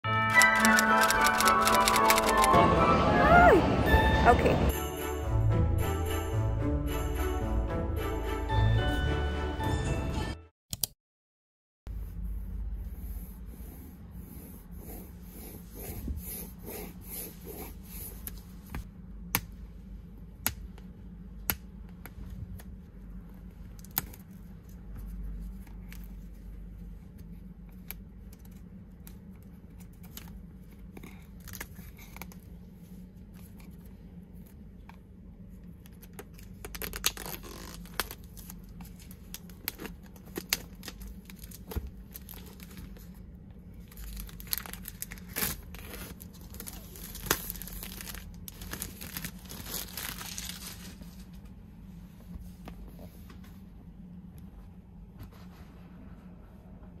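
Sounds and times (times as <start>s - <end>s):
steady low hum: 11.9s - 57.0s
plastic wrap crinkling: 36.3s - 43.2s, 43.8s - 51.4s.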